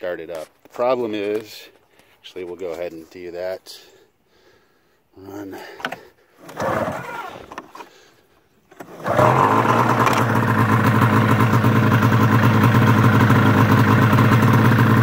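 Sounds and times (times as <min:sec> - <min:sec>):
snowmobile engine running: 0:08.9 - 0:15.0.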